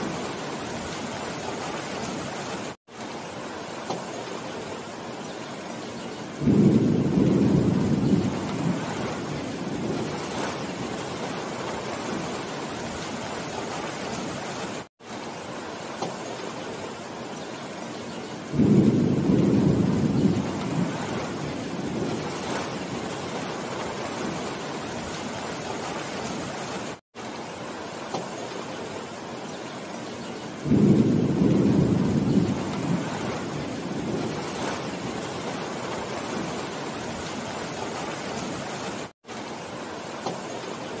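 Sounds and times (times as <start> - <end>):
heavy rain on leafy trees: 0.0 - 41.0
deep rolls of thunder: 6.4 - 11.0, 18.5 - 24.4, 30.6 - 36.6.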